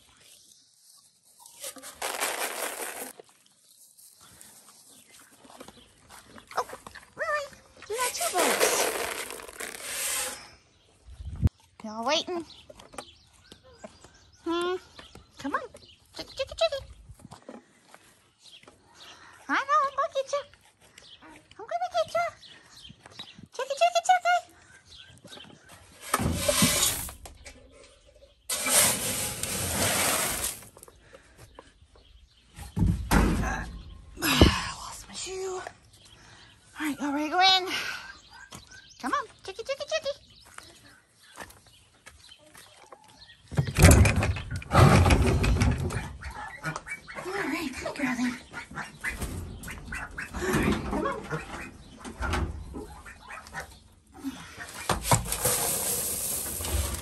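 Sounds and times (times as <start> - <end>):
grain poured into metal bucket: 1.6 - 3.2, 8.2 - 10.4, 26.2 - 27.2, 28.5 - 30.7, 55.2 - 57.0
chickens clucking: 44.6 - 54.9.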